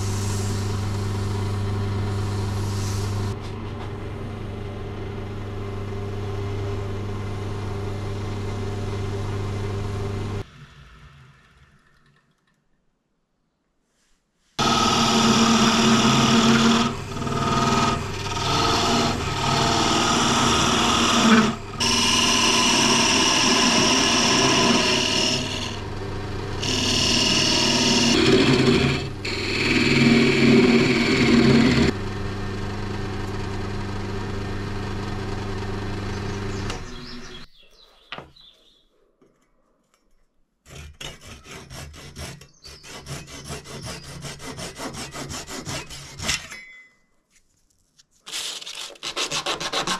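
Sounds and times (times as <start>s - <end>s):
wood lathe motor humming: 0.1s - 10.4s, 14.6s - 37.5s
knife sawing through wood: 14.6s - 25.8s, 26.6s - 31.9s, 40.6s - 46.5s, 48.3s - 49.9s
chisel scraping spinning wood: 14.6s - 32.0s, 40.6s - 46.5s, 48.3s - 49.9s.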